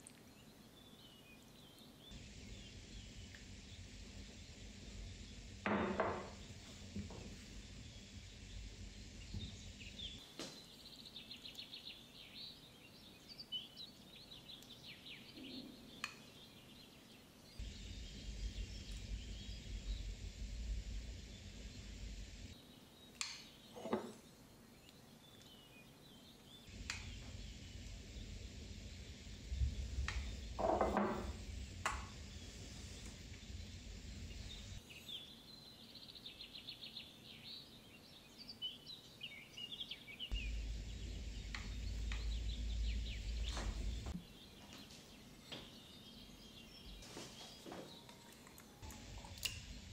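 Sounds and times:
birds chirping: 0.1 - 49.9
low ambient rumble: 2.0 - 10.2, 17.6 - 22.6, 26.6 - 34.8, 40.3 - 44.6, 48.6 - 49.9.

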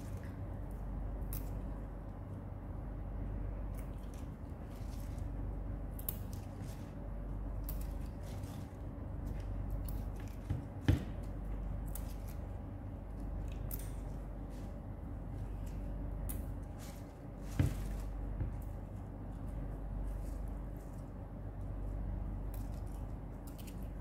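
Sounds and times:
low hum: 0.0 - 24.0
leaves handled with crisp clicks: 5.9 - 10.5, 11.2 - 14.8.

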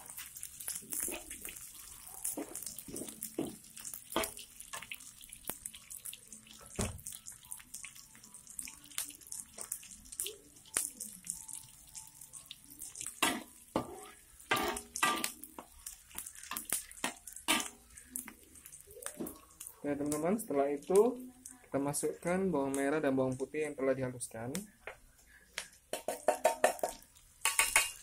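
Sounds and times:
onions sizzling in hot oil: 0.0 - 28.0
metal spatula scraping wok: 13.2 - 15.3.

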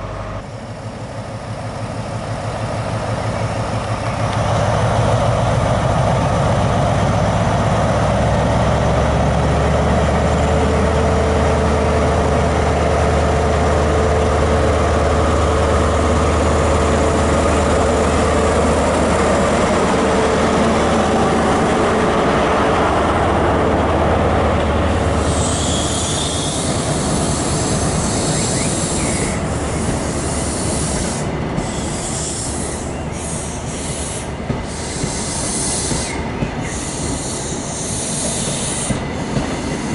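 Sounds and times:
train diesel engine droning: 0.0 - 39.9
high hiss: 25.1 - 39.9
train wheel squeal: 25.1 - 39.9.

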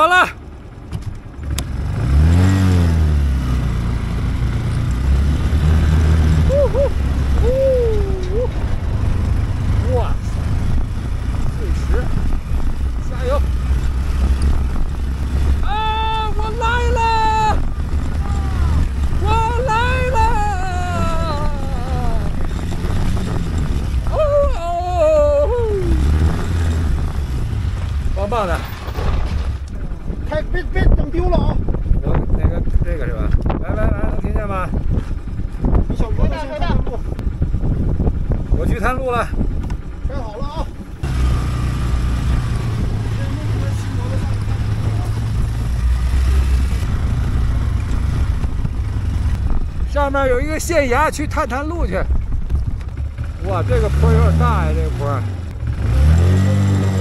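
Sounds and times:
motorcycle engine revving: 0.0 - 57.0
wind on microphone: 5.0 - 28.3, 29.0 - 41.1, 41.7 - 53.6
rider vocal sounds: 5.6 - 10.8, 15.4 - 27.3, 53.2 - 57.0.

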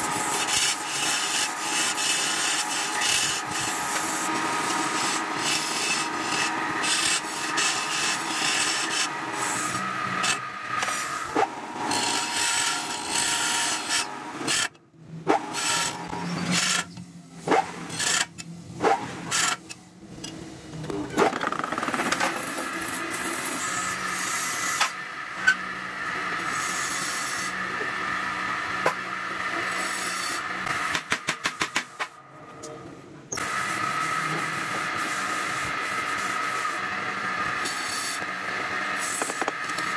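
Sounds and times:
lathe humming: 0.0 - 14.6.

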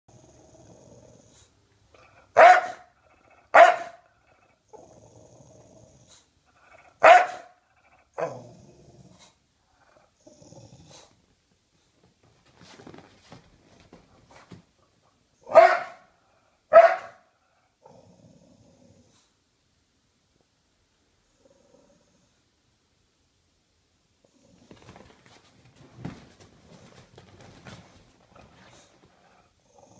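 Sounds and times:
dog growling: 0.1 - 2.4, 3.0 - 7.0, 7.7 - 11.2, 17.8 - 19.3, 21.3 - 22.3, 28.3 - 29.9
dog barking: 2.3 - 2.9, 3.5 - 4.0, 7.0 - 7.6, 15.5 - 16.1, 16.7 - 17.3.

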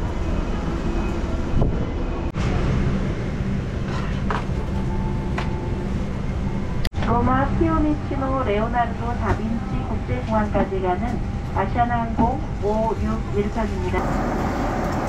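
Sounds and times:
airliner cabin rumble: 7.9 - 15.0.

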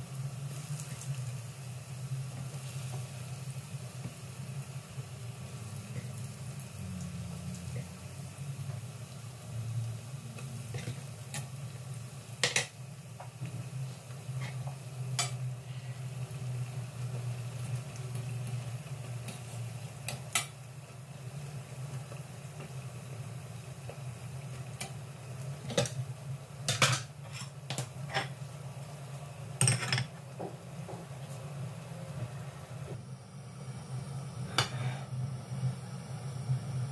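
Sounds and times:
food sizzling in oil: 0.0 - 36.9
low hum: 30.7 - 36.9.

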